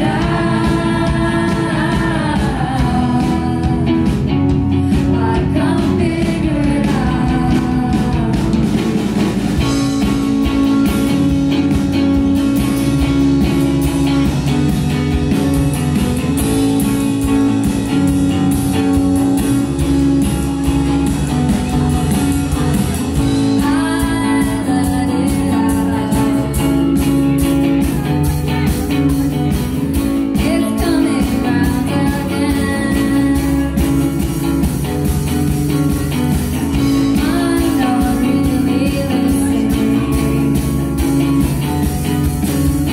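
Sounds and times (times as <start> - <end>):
woman singing: 0.0 - 9.3, 23.3 - 35.0, 36.1 - 41.7
electric bass guitar: 0.0 - 42.9
strummed guitar: 0.0 - 42.9.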